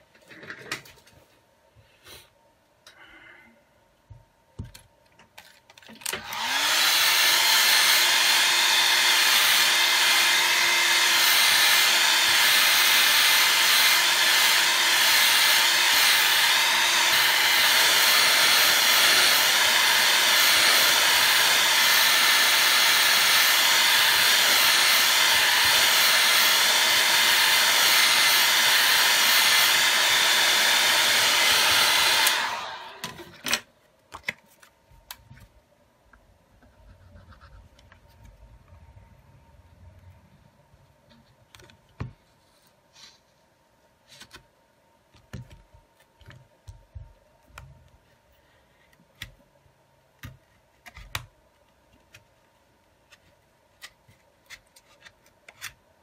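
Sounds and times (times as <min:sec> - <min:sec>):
heat gun blowing: 0:06.0 - 0:33.4.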